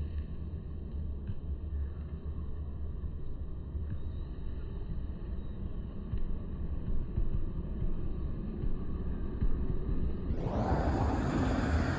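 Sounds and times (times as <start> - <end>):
low outdoor rumble: 9.8 - 11.9.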